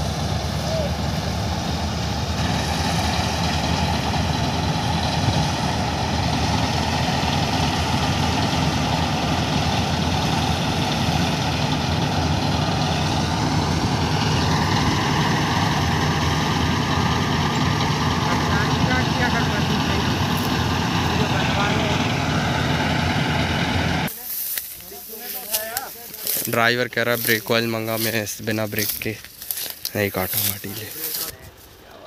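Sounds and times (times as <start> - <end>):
high machine whine: 0.0 - 24.1
combine harvester engine drone: 0.0 - 24.2.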